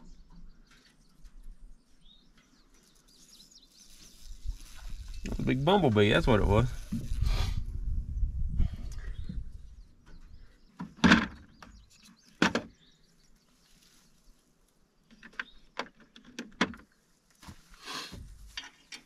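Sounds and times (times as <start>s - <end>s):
tool clunks and knocks: 10.0s - 11.8s, 12.4s - 12.8s.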